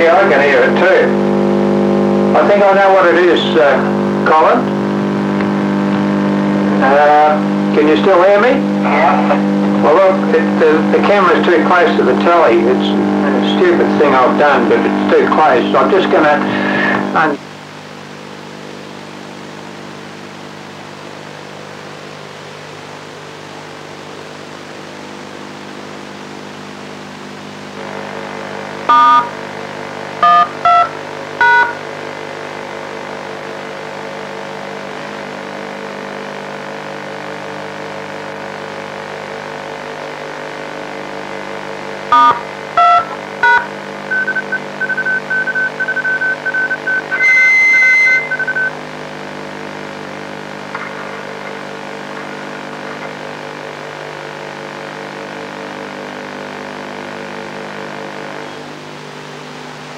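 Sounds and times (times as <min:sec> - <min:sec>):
steady buzzing hum: 0:00.0 - 0:59.9
touch-tone beeps: 0:28.9 - 0:29.3, 0:30.2 - 0:31.8, 0:42.1 - 0:48.7
high steady tone: 0:28.9 - 0:29.4, 0:30.2 - 0:31.8, 0:42.1 - 0:48.8
short single-pitch beeps: 0:42.2 - 0:48.7.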